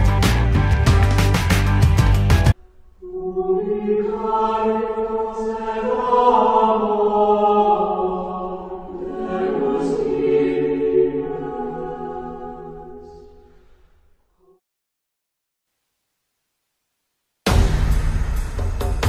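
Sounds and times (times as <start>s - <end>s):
choir chanting: 3.0s - 13.6s.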